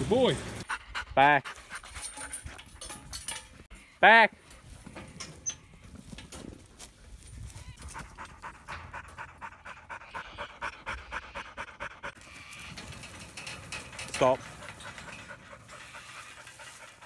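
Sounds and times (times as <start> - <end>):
dog panting fast: 0.6 - 2.5, 7.8 - 12.2.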